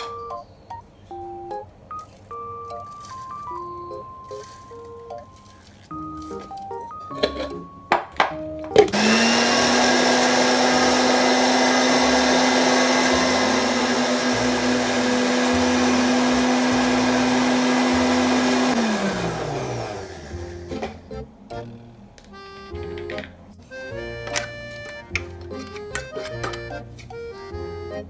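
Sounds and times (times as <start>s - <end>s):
blender motor running: 8.9s - 20.6s.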